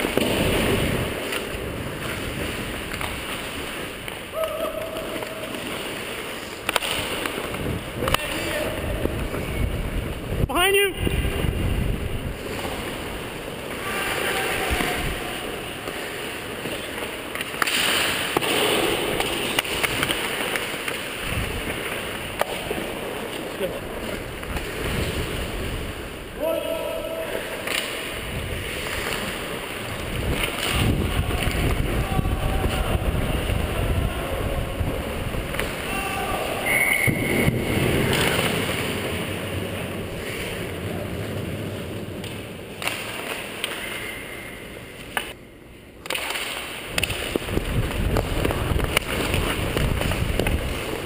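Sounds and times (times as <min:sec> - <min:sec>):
wind noise on microphone: 0:08.8 - 0:12.4, 0:30.0 - 0:35.5, 0:47.4 - 0:50.8.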